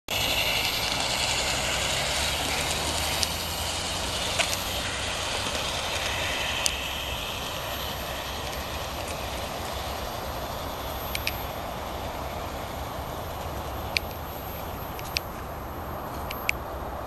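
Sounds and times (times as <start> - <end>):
model train running on track: 0.0 - 17.0
sharp clicks: 4.1 - 12.3, 13.3 - 15.5, 16.1 - 16.6.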